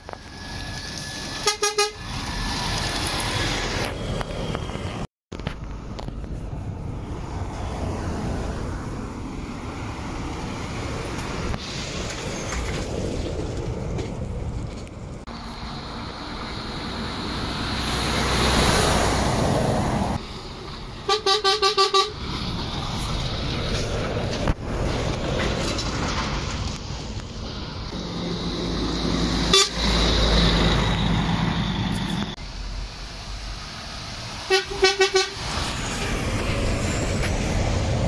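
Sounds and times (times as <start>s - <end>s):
lorry horn toots: 29.5s - 29.9s, 34.5s - 35.4s.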